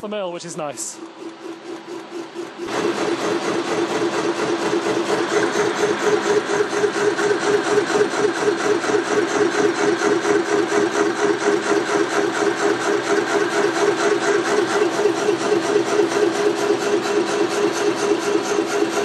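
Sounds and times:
milling machine humming: 0.0 - 19.0.

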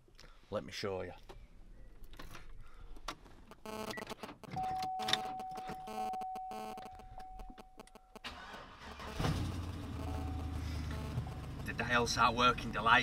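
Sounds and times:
steady electronic tone: 5.1 - 8.2, 9.1 - 13.0
car engine starting: 8.2 - 13.0
electronic chime pulses: 9.0 - 12.0.

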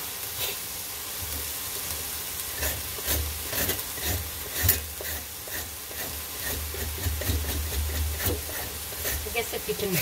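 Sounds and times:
meat and onions sizzling in a pan: 0.0 - 10.0
knife scraping squash skin: 2.6 - 9.6.

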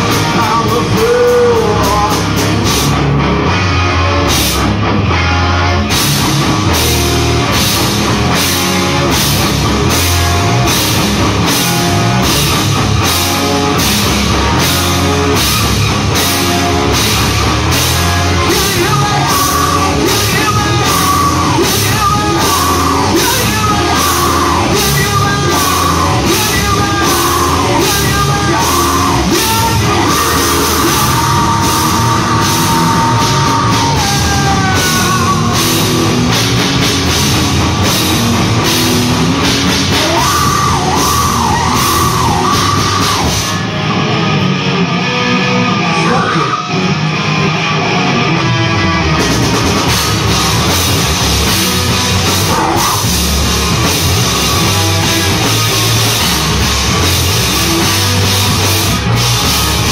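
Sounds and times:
person singing: 0.0 - 2.7, 17.8 - 36.4, 39.8 - 43.6, 51.5 - 59.9
drum kit with cymbals: 0.0 - 3.2, 5.8 - 43.8, 49.0 - 59.9
electric guitars: 0.0 - 59.9.

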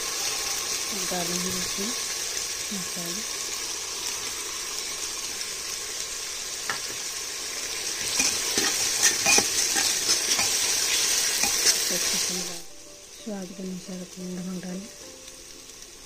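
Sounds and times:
spices sizzling in hot oil: 0.0 - 16.0
metal spoon scraping pot: 8.0 - 11.9.

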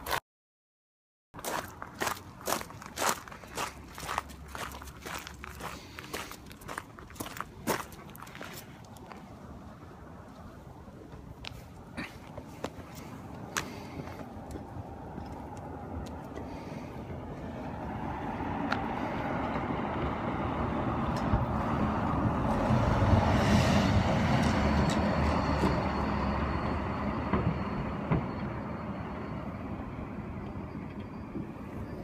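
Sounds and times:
road vehicle passing by: 1.5 - 32.0.

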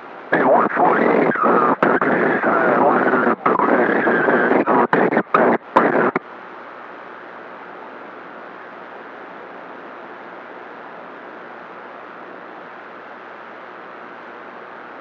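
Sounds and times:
radio static hiss: 0.0 - 15.0
choppy radio voice transmission: 0.3 - 6.2.

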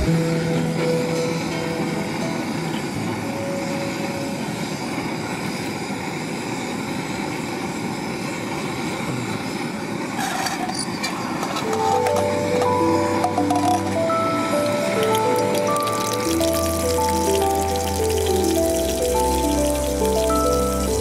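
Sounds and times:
background music: 0.0 - 4.8, 11.7 - 21.0
gas stove burner hissing: 0.0 - 10.2, 10.9 - 21.0.

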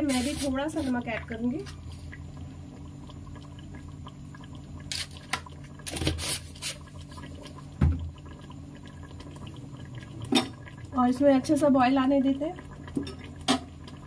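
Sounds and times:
steady low hum: 0.0 - 5.9
thick gravy bubbling: 0.0 - 14.0.

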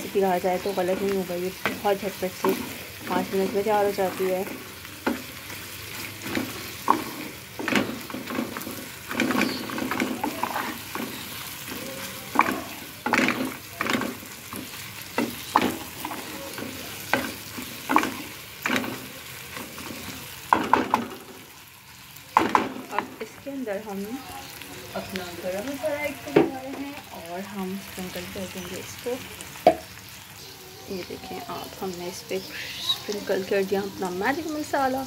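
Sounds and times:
frying sizzle: 0.0 - 35.0
spatula scraping metal pan: 5.9 - 14.0.

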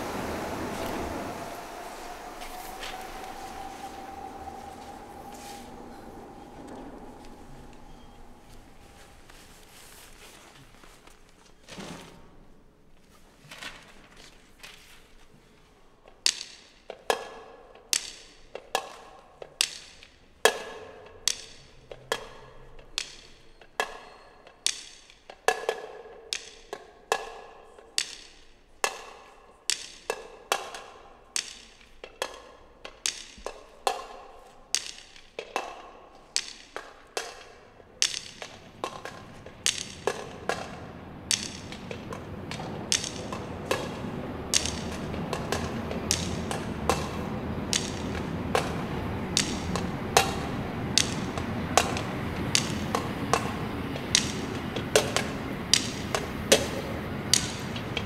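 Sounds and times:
subway train rumble: 0.0 - 10.6, 37.7 - 58.0.

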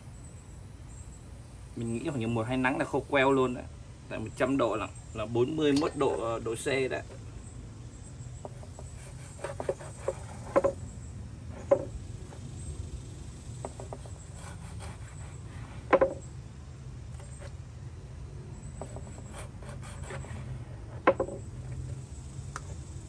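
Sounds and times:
steady low hum: 0.0 - 23.0
cleaver knocking on cutting board: 8.4 - 10.8, 11.6 - 11.9, 15.9 - 16.2.

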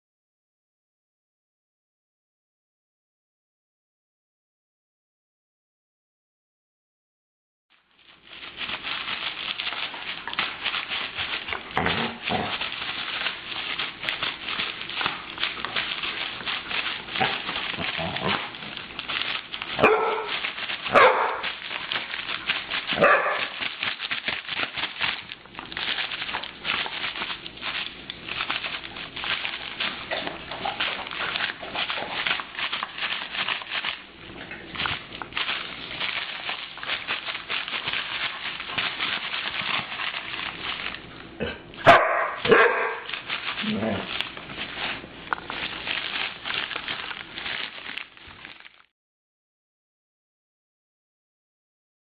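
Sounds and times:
dog barking: 19.8 - 21.5, 23.0 - 23.6, 41.4 - 43.1.

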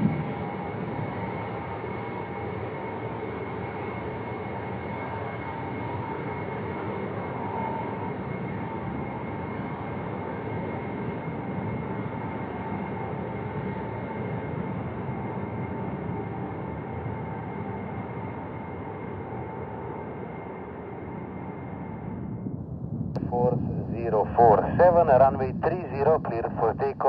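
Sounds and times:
faint steady engine whine: 0.0 - 27.0
jet engines rushing: 23.2 - 27.0.

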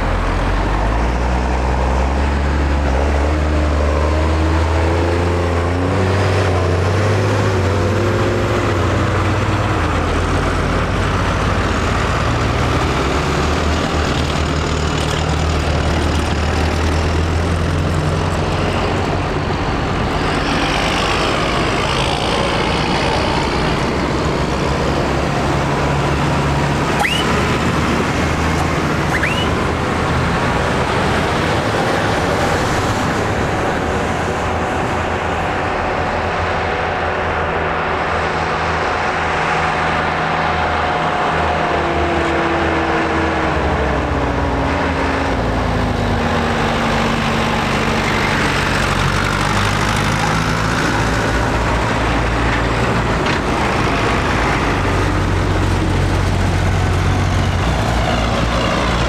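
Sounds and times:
tractor diesel engines driving past: 0.0 - 59.0
high rising squeak: 27.0 - 27.4, 29.0 - 29.6.

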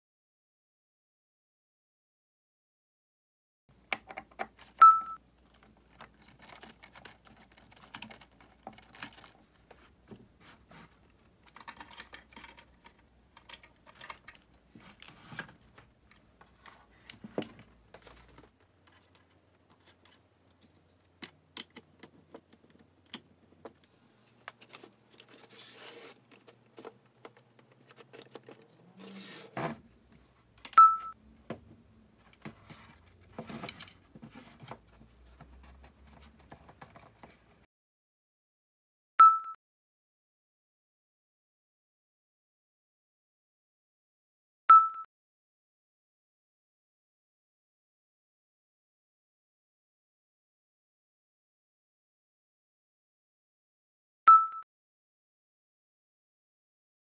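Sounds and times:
short high beep: 4.8 - 5.2.

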